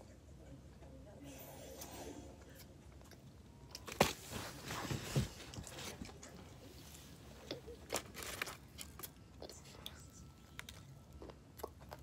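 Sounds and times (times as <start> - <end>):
crunchy snack being chewed: 7.4 - 12.0.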